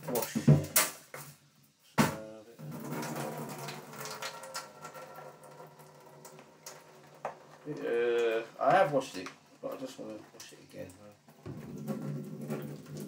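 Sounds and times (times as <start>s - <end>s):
water rushing into sink: 2.6s - 13.0s.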